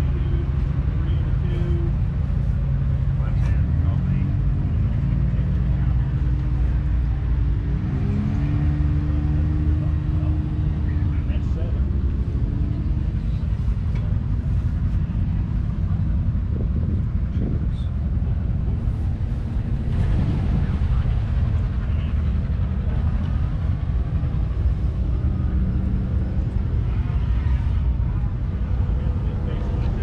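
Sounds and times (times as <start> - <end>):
tractor engine rumbling: 0.0 - 30.0.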